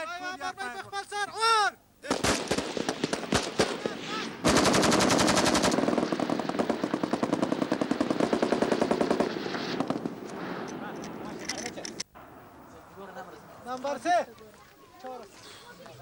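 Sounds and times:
assault rifles firing: 0:02.0 - 0:12.0.

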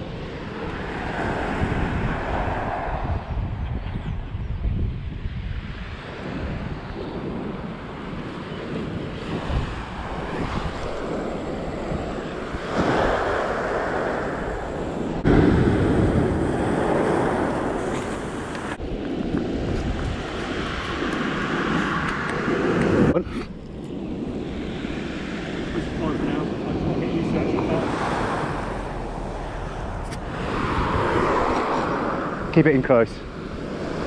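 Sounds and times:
wind blowing across microphone: 0:00.0 - 0:34.0
surf breaking on shingle beach: 0:09.3 - 0:23.1.

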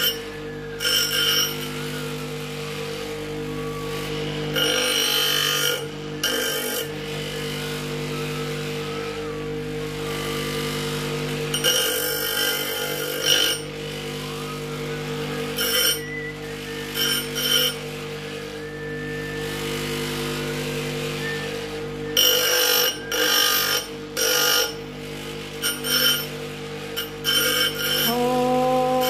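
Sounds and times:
metal grinding on wheel: 0:00.0 - 0:02.1, 0:11.5 - 0:13.7, 0:22.1 - 0:24.8, 0:25.6 - 0:26.3, 0:27.0 - 0:29.0
bench grinder motor running: 0:00.0 - 0:29.0.

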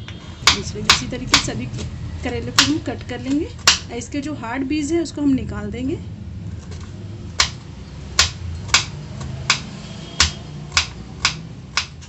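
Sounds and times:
knife chopping on wooden board: 0:03.6 - 0:03.9, 0:07.4 - 0:12.0.

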